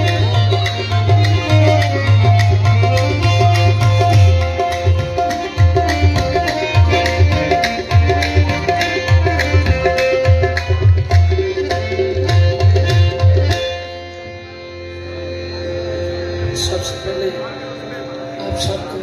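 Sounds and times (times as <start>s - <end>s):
tabla drumming: 0.0s - 14.3s
harmonium drone: 0.0s - 19.0s.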